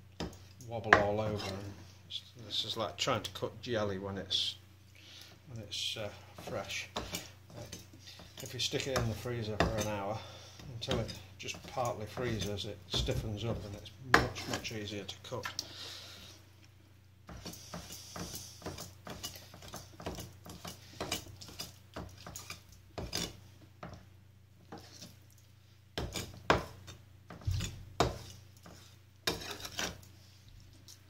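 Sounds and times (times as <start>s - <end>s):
knife chopping on wooden board: 10.9s - 14.6s, 26.0s - 30.0s.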